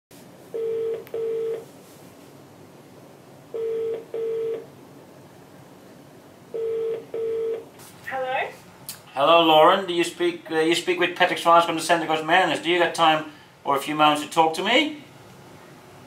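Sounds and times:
telephone ringback tone: 0:00.5 - 0:01.7, 0:03.5 - 0:04.7, 0:06.5 - 0:07.7.

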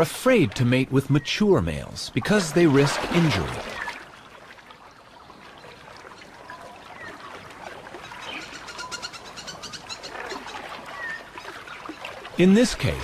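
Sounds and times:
water lapping and splashing: 0:00.0 - 0:13.0
patter of small splashes: 0:02.0 - 0:09.0, 0:09.8 - 0:13.0.

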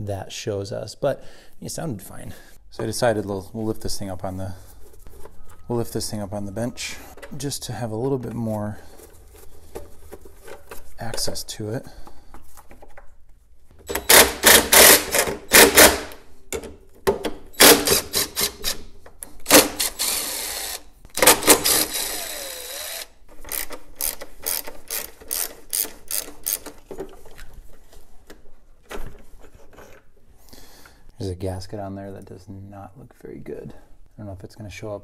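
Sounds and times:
cordless driver clicking and whirring: 0:13.9 - 0:15.9, 0:19.5 - 0:26.7.

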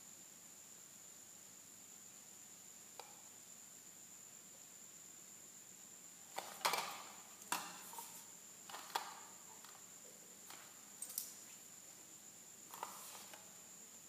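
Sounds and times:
faint high whine: 0:00.0 - 0:14.0.

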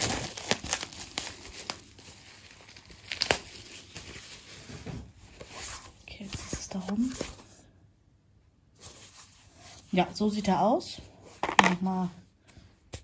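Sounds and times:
paper rustling and crinkling: 0:00.0 - 0:07.6.

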